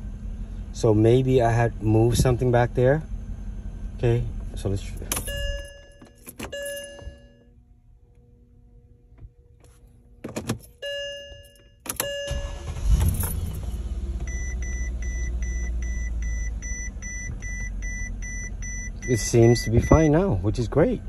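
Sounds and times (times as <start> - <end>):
car engine starting and idling: 0.0 - 21.0
rapid warning beep: 5.3 - 7.3, 14.3 - 20.3
short electronic chimes: 10.8 - 13.5.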